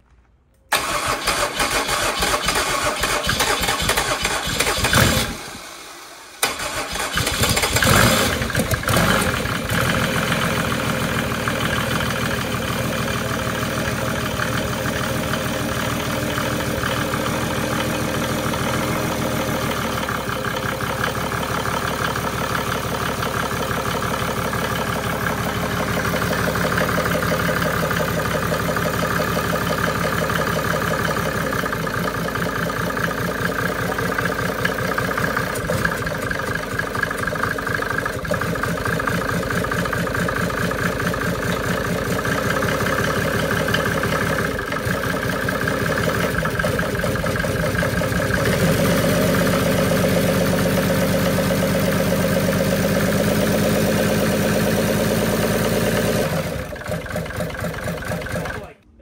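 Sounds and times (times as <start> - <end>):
diesel engine starting and idling: 0.7 - 59.0.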